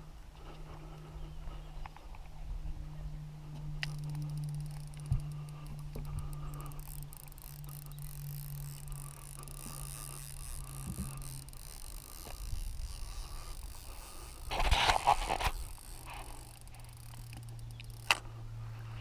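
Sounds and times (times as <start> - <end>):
low hum: 0.0 - 19.0
fishing reel ticking: 3.5 - 19.0.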